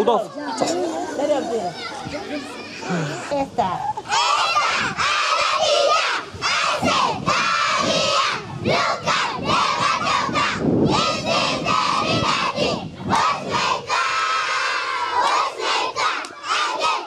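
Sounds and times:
crowd of children shouting: 0:04.0 - 0:17.0.

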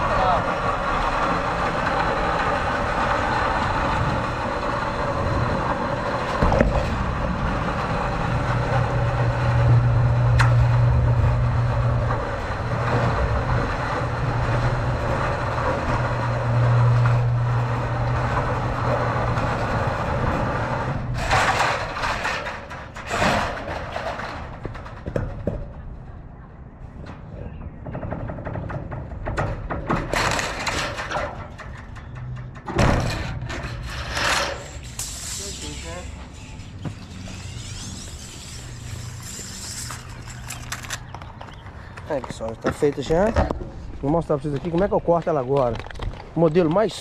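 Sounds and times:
metal scraping rush: 0:00.0 - 0:25.0, 0:27.8 - 0:41.9
gutter machine clatter: 0:00.0 - 0:25.5
low motor hum: 0:00.0 - 0:46.9.

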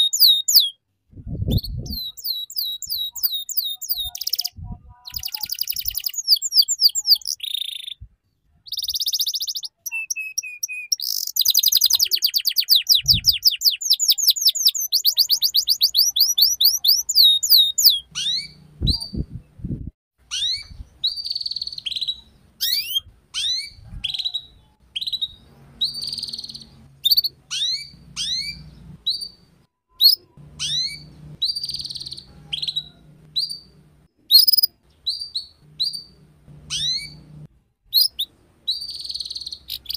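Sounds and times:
canary trilling: 0:00.0 - 0:00.8, 0:01.6 - 0:08.0, 0:08.6 - 0:19.1, 0:20.3 - 0:39.9
canary chirps sliding down: 0:05.1 - 0:08.0, 0:08.7 - 0:19.2, 0:20.3 - 0:29.4, 0:30.0 - 0:33.7, 0:34.3 - 0:36.1, 0:36.7 - 0:37.2, 0:37.9 - 0:39.9.

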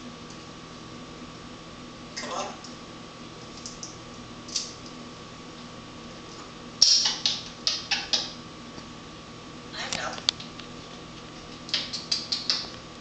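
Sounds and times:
parrot clicking: 0:06.8 - 0:08.3, 0:11.5 - 0:12.8.

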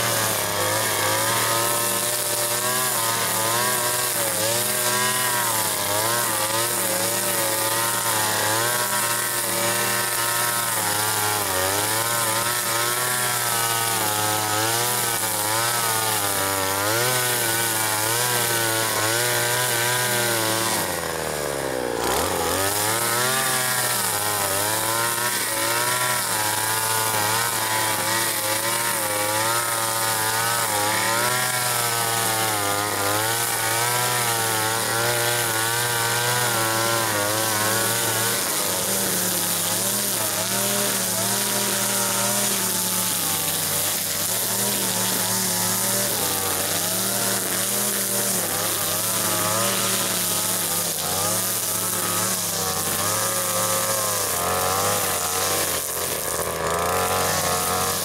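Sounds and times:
chainsaw cutting wood: 0:00.0 - 0:58.0.

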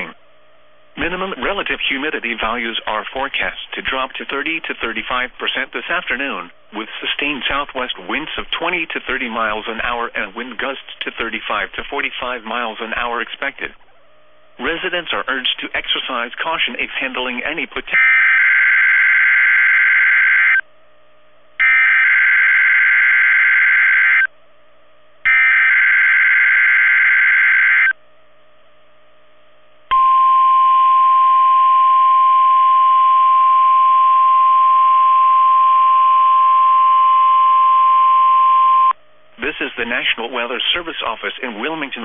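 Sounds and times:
single-pitch warning alarm tone: 0:18.0 - 0:20.7, 0:21.6 - 0:24.3, 0:25.2 - 0:28.0, 0:29.9 - 0:39.0.

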